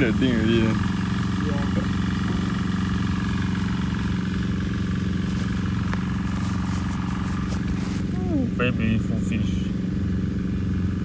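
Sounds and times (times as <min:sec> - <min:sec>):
low engine drone: 0:00.0 - 0:11.0.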